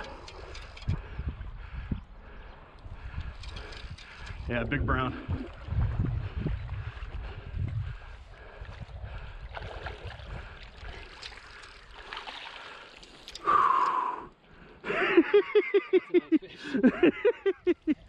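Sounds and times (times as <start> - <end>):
water splashing: 9.4 - 13.5.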